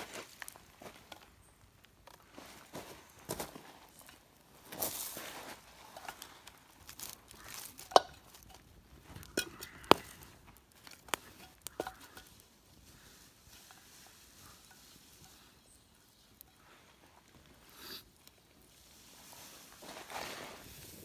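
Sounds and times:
faint steady hiss: 9.1 - 21.0
steel pan knocking and clanking: 9.2 - 10.0, 11.4 - 12.3.

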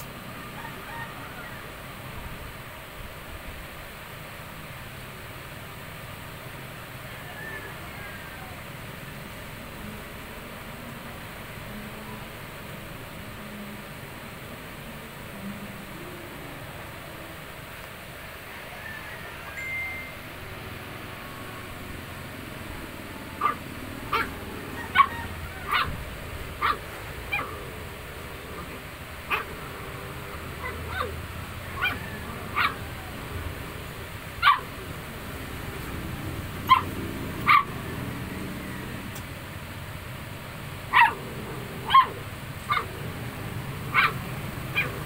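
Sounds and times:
puppies yipping and whining: 23.4 - 27.5, 30.6 - 33.1, 36.6 - 37.7.

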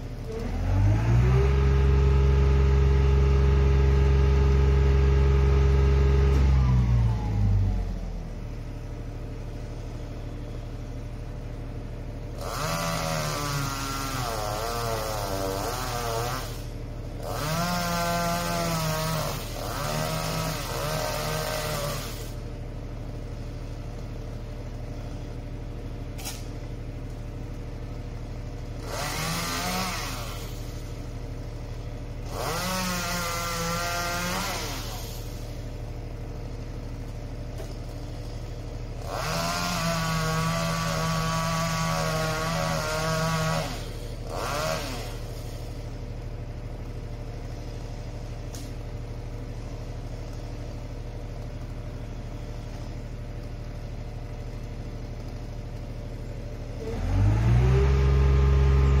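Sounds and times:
truck engine idling: 0.0 - 12.6, 22.2 - 29.0, 45.0 - 59.0
chainsaw cutting: 0.3 - 6.7, 12.2 - 25.3, 27.6 - 59.0.

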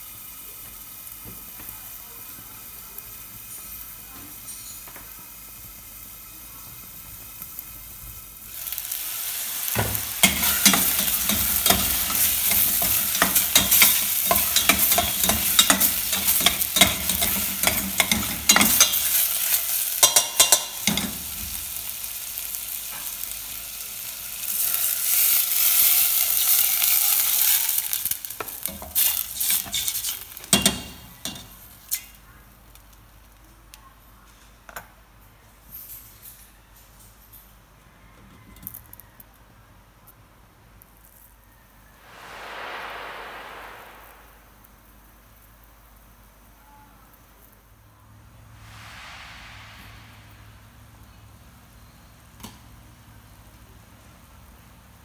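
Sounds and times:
chicken sizzling in a pot: 0.0 - 33.4, 40.9 - 55.0
metal utensil scraping pot: 10.2 - 21.2, 28.8 - 31.5.

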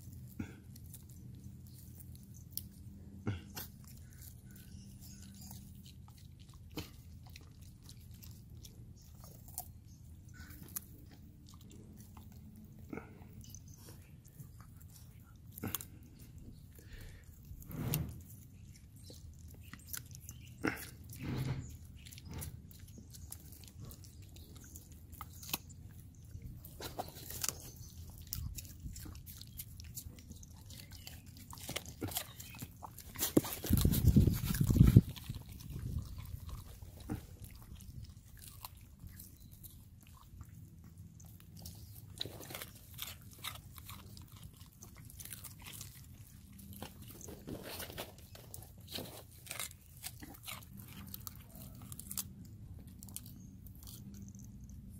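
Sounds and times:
dogs chewing vegetable stalks: 0.0 - 54.9.

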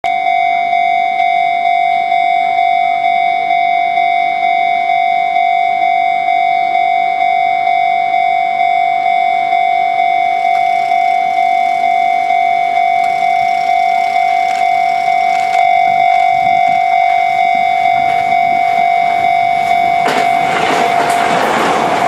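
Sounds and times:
level-crossing warning bell ringing: 0.0 - 22.0
faint approaching train noise: 7.1 - 22.0.

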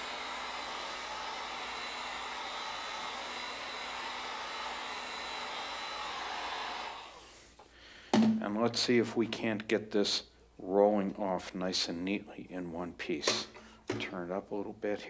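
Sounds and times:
heat gun blowing: 0.0 - 7.6.

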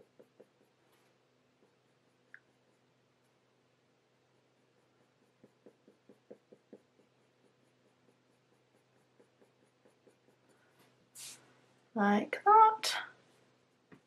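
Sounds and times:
pencil scratching on paper: 0.0 - 3.4, 4.3 - 11.4.

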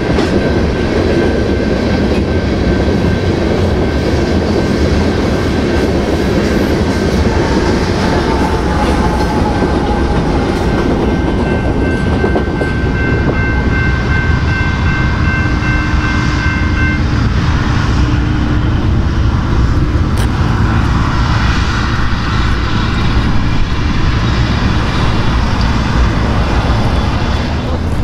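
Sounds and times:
railroad crossing bell dinging: 0.0 - 4.0, 6.4 - 19.1
freight train rumbling: 0.0 - 28.0.

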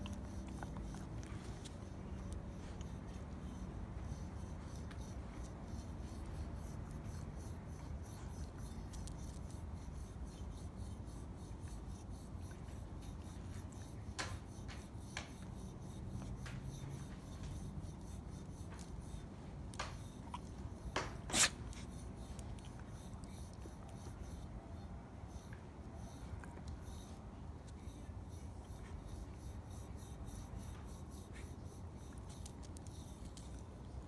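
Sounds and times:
back scratcher scratching dog fur: 0.0 - 34.0.

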